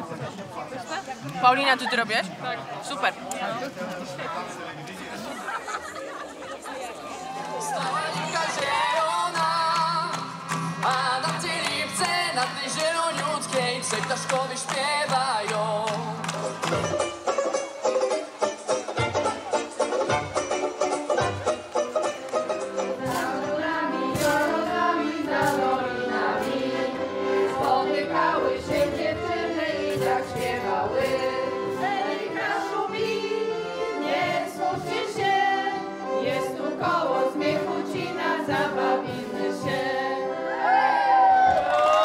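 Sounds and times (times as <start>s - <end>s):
accordion: 6.0s - 41.0s
women singing together: 7.6s - 10.2s, 22.8s - 40.9s.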